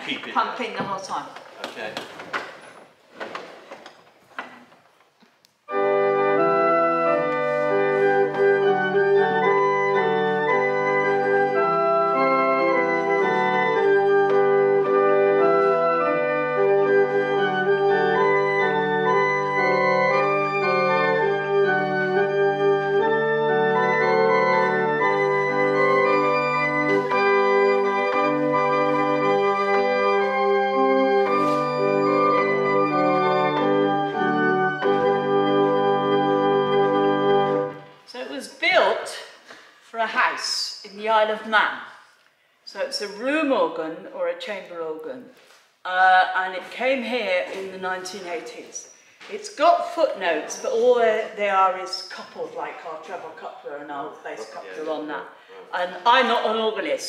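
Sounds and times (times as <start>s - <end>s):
pipe organ playing chords: 5.7s - 38.0s.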